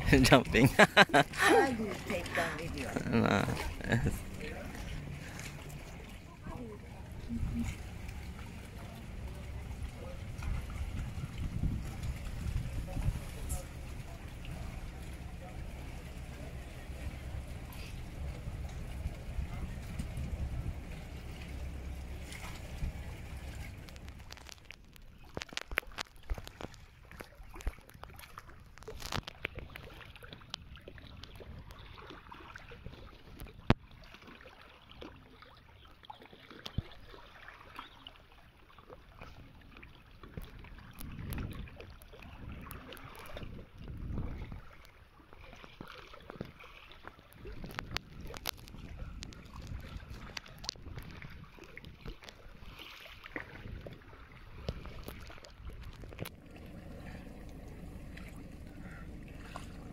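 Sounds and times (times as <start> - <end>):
low rumble: 0.0 - 24.8, 55.6 - 59.9
wind gusting on microphone: 9.6 - 14.0, 16.9 - 24.2, 41.0 - 44.7.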